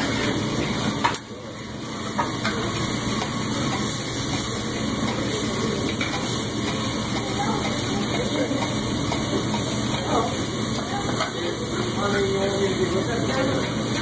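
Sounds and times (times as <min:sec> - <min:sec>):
food sizzling on a griddle: 0:00.0 - 0:14.0
metal spatula clacking on hot plate: 0:03.2 - 0:10.2, 0:10.8 - 0:11.4.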